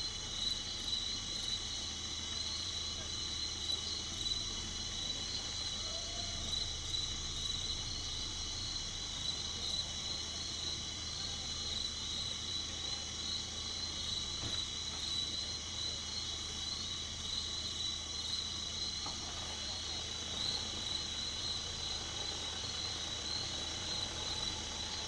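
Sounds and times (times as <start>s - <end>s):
crickets and insects chirring: 0.0s - 25.0s.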